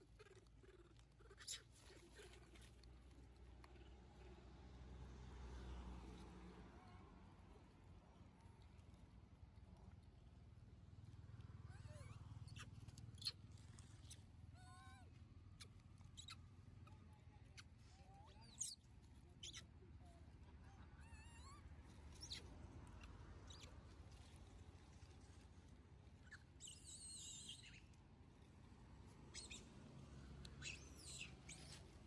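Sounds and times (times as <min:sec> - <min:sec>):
young macaques squeaking: 0:00.0 - 0:02.8, 0:11.6 - 0:25.4, 0:26.0 - 0:28.5, 0:29.2 - 0:29.7, 0:30.4 - 0:32.0.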